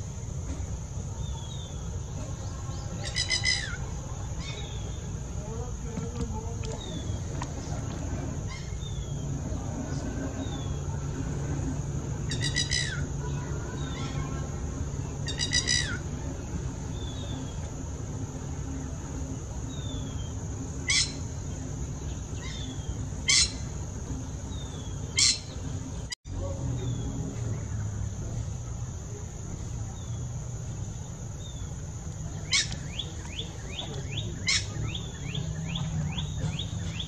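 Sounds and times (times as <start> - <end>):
high insect-like hiss: 0.0 - 37.0
lapwing strident cries: 3.0 - 4.8, 12.2 - 16.3, 20.8 - 21.6, 22.4 - 23.9, 25.1 - 25.6.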